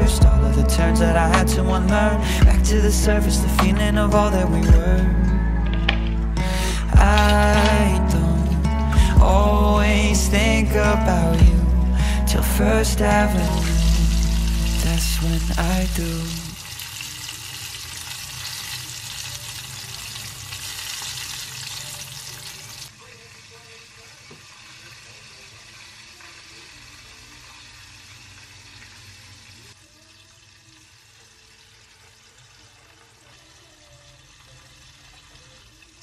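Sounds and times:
butter sizzling in a frying pan: 13.8 - 36.0
chicken deep-frying in hot oil: 13.8 - 36.0.

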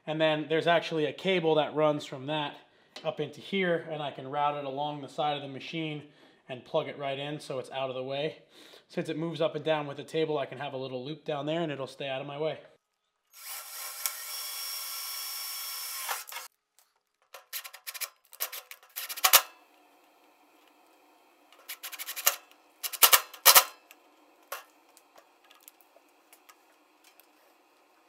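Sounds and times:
cordless drill running: 13.3 - 16.5
clicks and knocks of metal hardware: 21.6 - 24.7.

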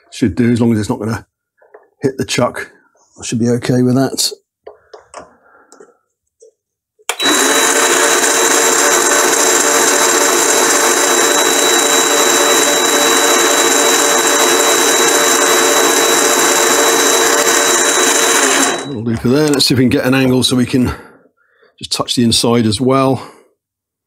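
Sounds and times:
lathe motor running with whine: 7.1 - 19.0.

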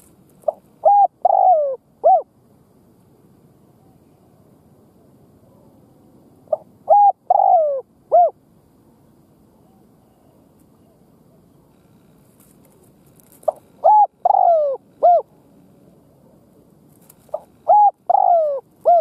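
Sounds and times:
dove cooing: 0.4 - 2.3, 6.5 - 8.4, 13.3 - 15.4, 17.0 - 19.0.

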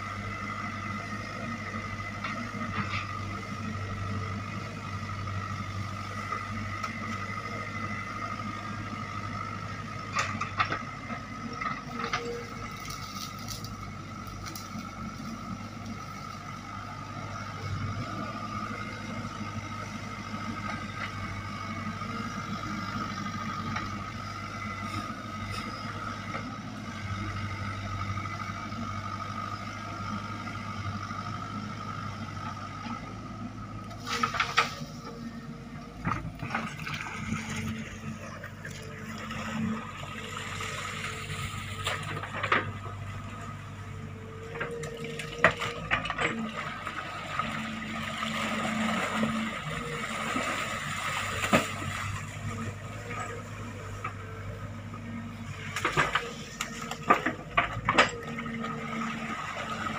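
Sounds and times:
excavator diesel engine running: 0.0 - 59.9
mud squelching: 44.9 - 54.1.

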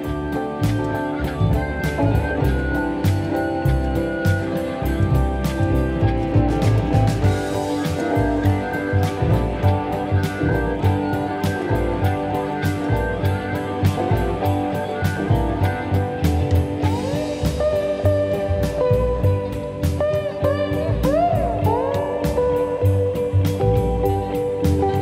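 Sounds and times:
drum beat: 0.0 - 25.0
guitar: 0.0 - 25.0.

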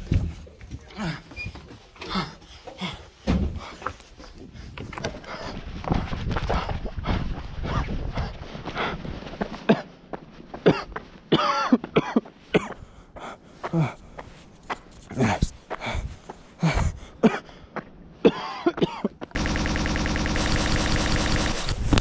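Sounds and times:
person coughing and gasping: 9.6 - 10.0, 10.6 - 12.8, 16.6 - 17.6, 18.2 - 19.2.

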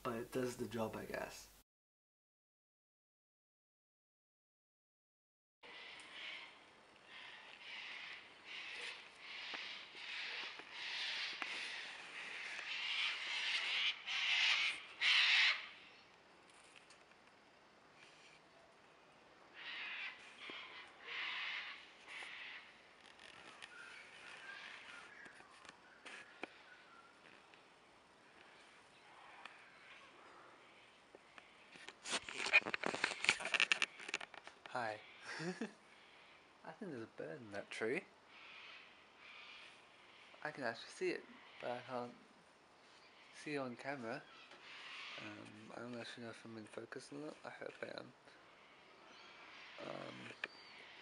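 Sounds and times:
bird squawking harshly: 5.7 - 15.8, 19.6 - 22.8, 44.5 - 45.4
camera handling rustling and knocking: 31.8 - 34.6.

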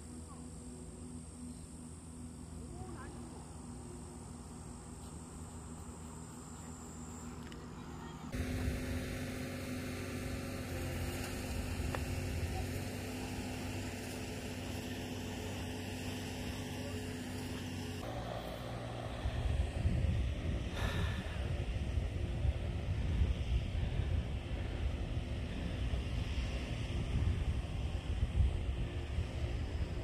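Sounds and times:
low mechanical hum: 0.0 - 30.0.

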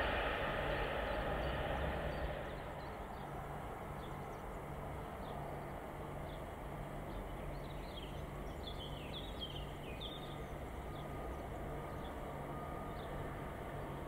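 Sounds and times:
low outdoor rumble: 0.0 - 14.0
songbirds chirping: 0.0 - 14.0.

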